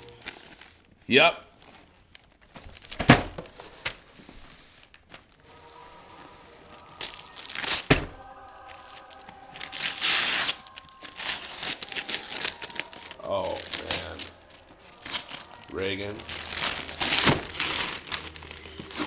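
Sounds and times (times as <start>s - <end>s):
wrapping paper tearing: 0.0s - 1.0s, 1.6s - 19.0s.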